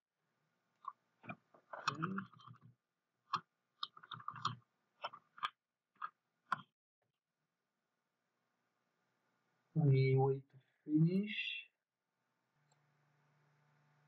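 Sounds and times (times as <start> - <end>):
computer mouse clicking: 3.3 - 6.7.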